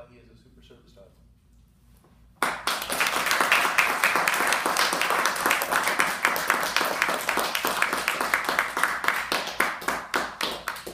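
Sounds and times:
audience applauding: 2.4 - 10.9.

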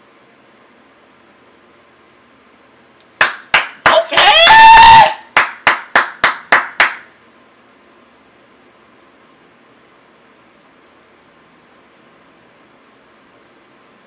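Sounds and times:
person clapping hands: 3.2 - 7.1
person shouting: 3.8 - 5.3.

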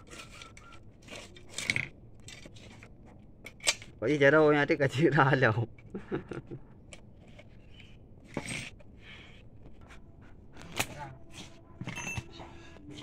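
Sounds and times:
small metal parts clinking: 0.0 - 2.7, 8.2 - 8.9.

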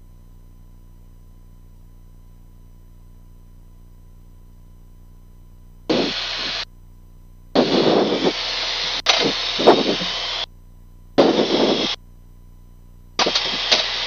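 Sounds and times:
faint steady hum and tone: 0.0 - 14.0
static radio transmission bursts: 5.9 - 6.6, 7.6 - 10.5, 11.2 - 12.0, 13.2 - 14.0.

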